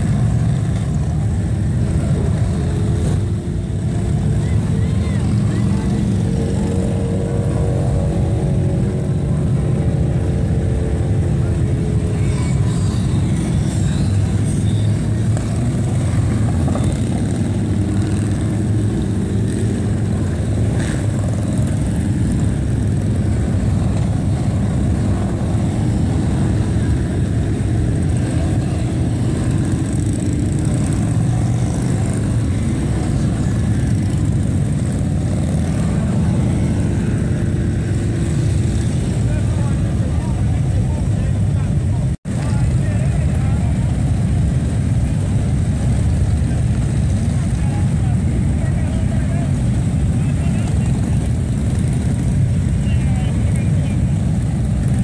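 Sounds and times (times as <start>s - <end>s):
motorcycle engines passing slowly: 0.0s - 55.0s.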